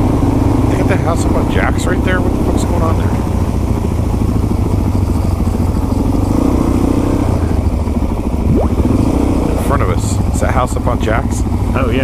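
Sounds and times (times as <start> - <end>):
motorcycle engine running: 0.0 - 12.0
wind rush: 8.4 - 9.4.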